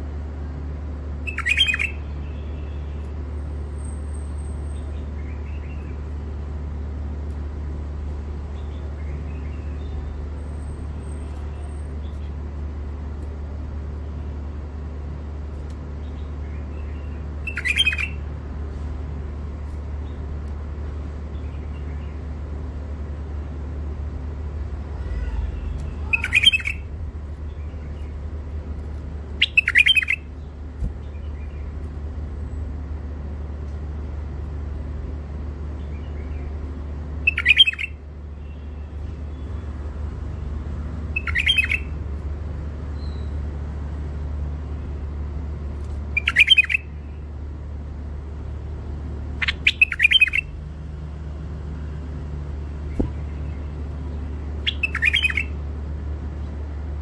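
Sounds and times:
steady low hum: 0.0 - 57.0
bird song phrases: 1.2 - 3.2, 3.8 - 6.1, 8.3 - 12.5, 15.9 - 18.3, 21.2 - 22.4, 24.9 - 28.3, 29.2 - 31.8, 35.6 - 40.5, 41.1 - 42.0, 42.8 - 43.5, 46.1 - 47.3, 49.3 - 50.6, 52.6 - 55.6.

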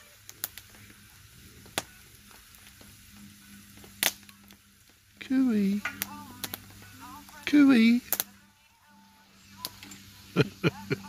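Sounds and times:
chips sizzling in oil: 0.0 - 11.0
sharp oil pops: 3.7 - 4.6, 5.8 - 7.4, 8.1 - 8.3.

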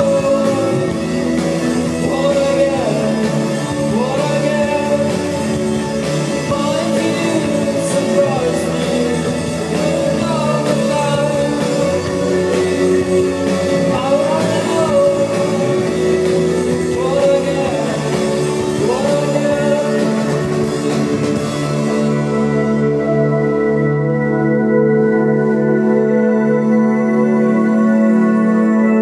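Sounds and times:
drums and cymbals: 0.0 - 22.8
electric guitars sustained tones: 0.0 - 29.0
live rock band playing: 0.0 - 29.0.

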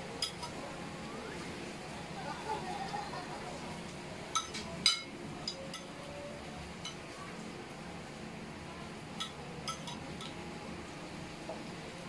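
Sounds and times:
spoons clinking on glass: 9.2 - 10.3.

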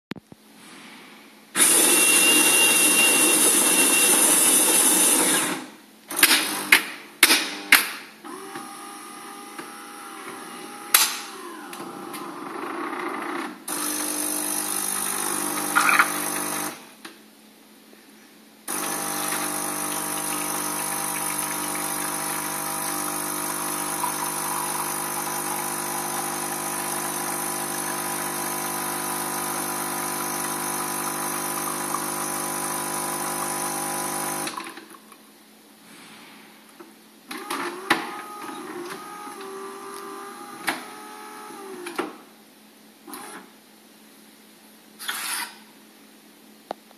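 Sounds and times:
coffee grinder running: 1.6 - 5.6, 13.7 - 16.8, 18.7 - 34.6, 38.2 - 41.7
water pump humming: 13.7 - 16.8, 18.7 - 34.6, 37.8 - 41.7
coffee pouring into cup: 18.7 - 28.3.

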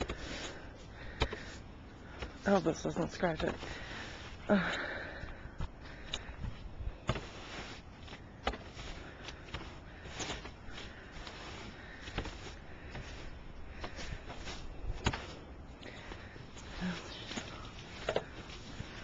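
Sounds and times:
brush sweeping snow: 0.0 - 1.6, 2.4 - 4.5, 7.0 - 19.0.

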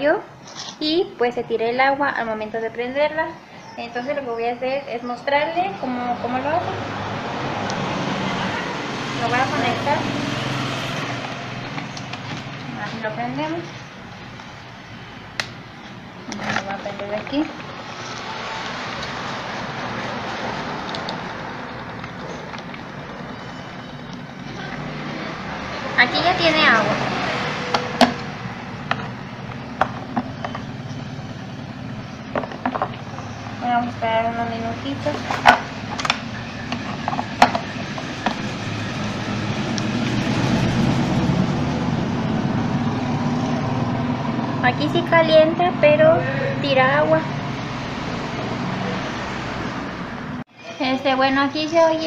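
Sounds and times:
steady rushing noise: 37.4 - 46.5.

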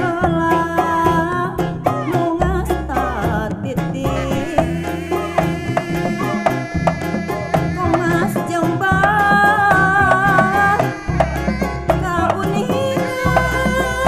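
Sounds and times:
person singing: 0.0 - 14.0.

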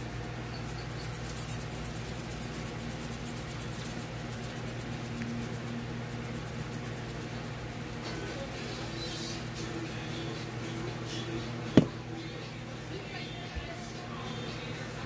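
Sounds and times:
seasoning shaker rattling: 0.0 - 15.0
steady low hum: 0.0 - 15.0.

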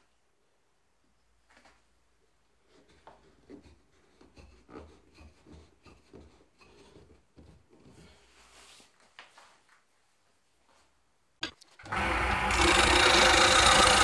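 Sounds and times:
wood rubbing and scraping on wood: 2.6 - 8.8, 11.9 - 14.0.

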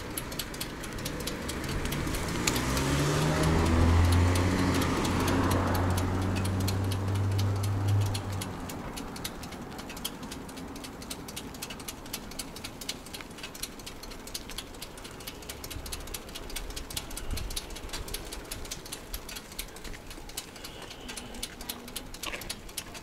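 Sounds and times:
bicycle ticks and rattles: 0.0 - 23.0
wind rumble on microphone: 16.9 - 17.7.

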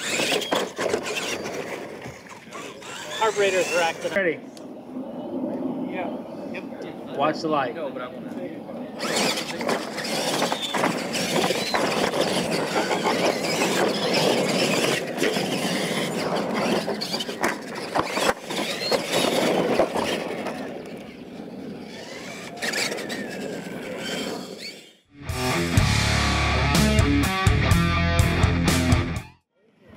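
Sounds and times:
toy truck motors whining: 0.0 - 4.2, 9.0 - 25.1
tyres scrabbling on dirt: 0.0 - 4.2, 9.0 - 24.9
trucks landing knocks: 9.2 - 20.6.

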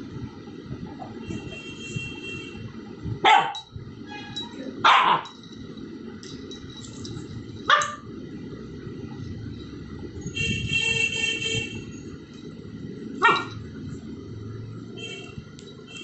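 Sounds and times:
low background hum: 0.0 - 16.0
puppy barking: 3.2 - 3.6, 4.8 - 5.3, 7.7 - 8.0, 13.2 - 13.6.

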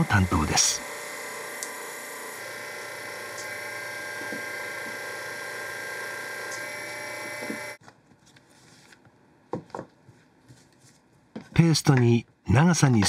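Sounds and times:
extruding machine motor whine: 0.0 - 7.8.

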